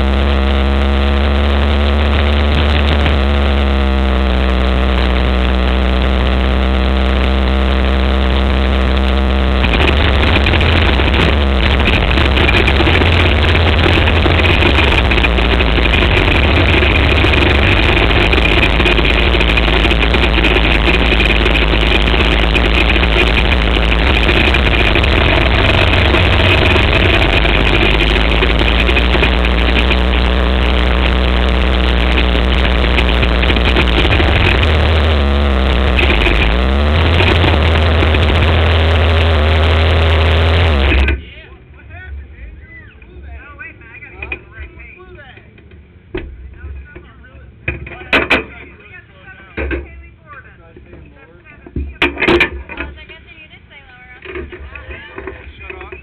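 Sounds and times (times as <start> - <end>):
motorcycle engine running at low revs: 0.0 - 41.3
steady high whine: 0.0 - 56.0.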